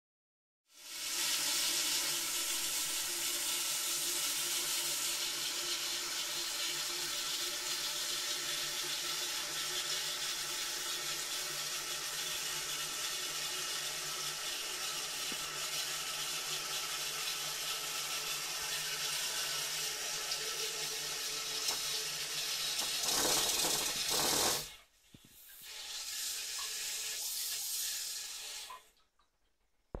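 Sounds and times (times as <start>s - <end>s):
toilet tank refilling hiss: 0.7s - 29.0s.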